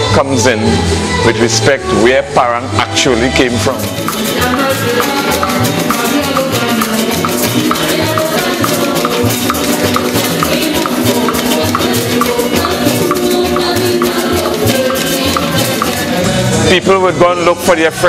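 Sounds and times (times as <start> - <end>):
bass line: 0.0 - 18.0
cuatro strumming: 1.4 - 18.0
hand drum: 3.5 - 16.7
maracas shaking: 3.5 - 18.0.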